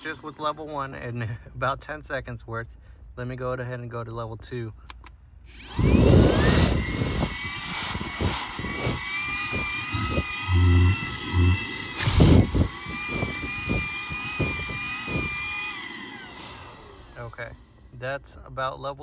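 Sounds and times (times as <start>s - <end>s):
vacuum motor whine: 5.5s - 17.9s
vacuum tool rubbing on carpet: 5.6s - 17.3s.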